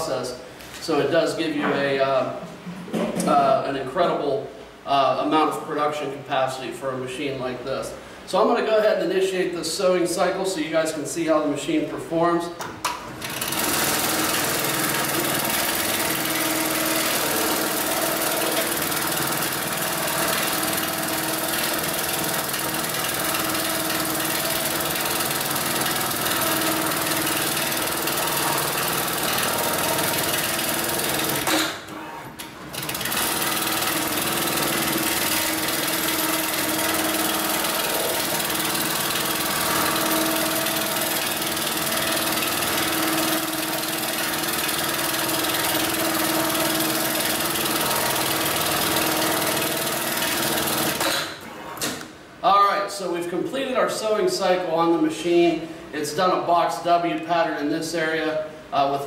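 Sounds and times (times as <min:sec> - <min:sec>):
sewing machine stitching: 0:13.2 - 0:52.0.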